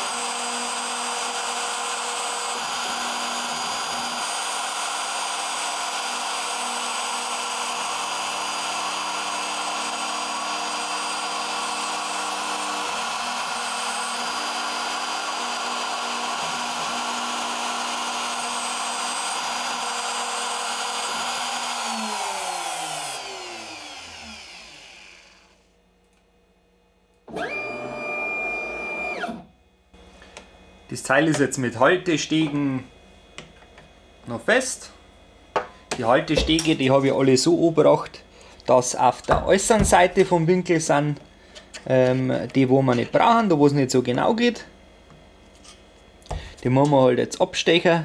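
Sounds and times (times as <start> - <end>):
router spindle whining: 0.0 - 25.7, 27.3 - 29.5.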